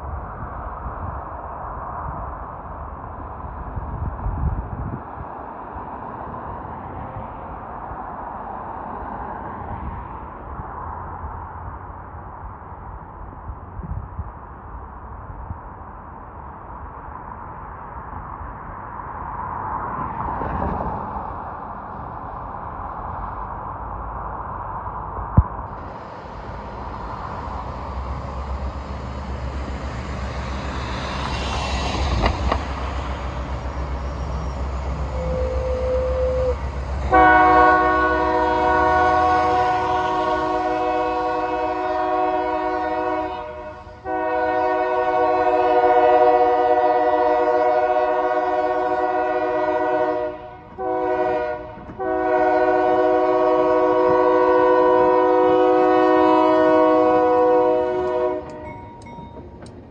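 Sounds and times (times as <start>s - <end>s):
diesel engines rumbling: 21.8s - 59.9s
locomotive air horn blasts: 34.8s - 58.9s.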